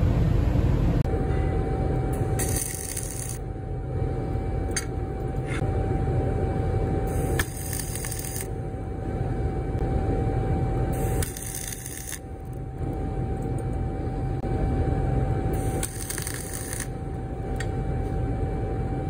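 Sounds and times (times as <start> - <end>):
steady hum: 0.0 - 19.0
welding arc crackling: 2.2 - 3.4, 7.1 - 8.5, 11.0 - 12.6, 15.6 - 17.0.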